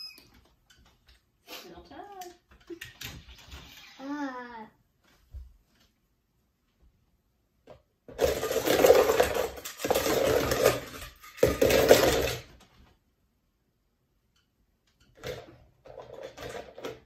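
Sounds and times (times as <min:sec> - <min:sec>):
toy cars clattering in a bowl: 0:08.1 - 0:12.6, 0:15.2 - 0:17.0.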